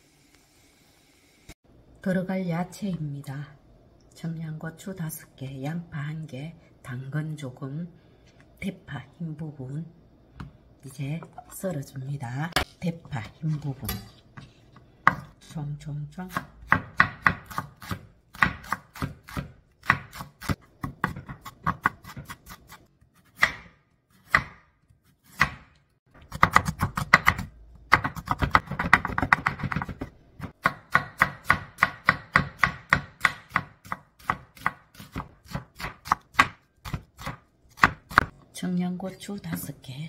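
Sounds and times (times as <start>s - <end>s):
knife chopping on wooden board: 16.3s - 38.3s.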